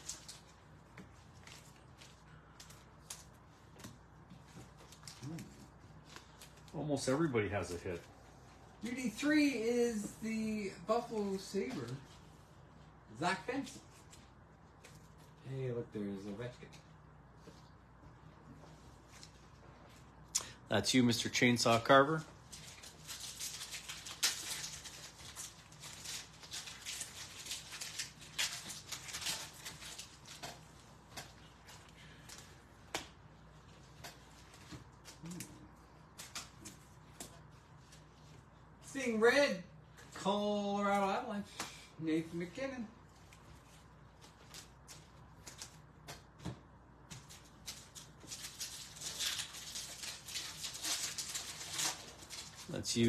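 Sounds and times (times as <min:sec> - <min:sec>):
foil wrappers crinkling and tearing: 0:00.0 - 0:03.5, 0:21.4 - 0:32.5, 0:47.1 - 0:53.0.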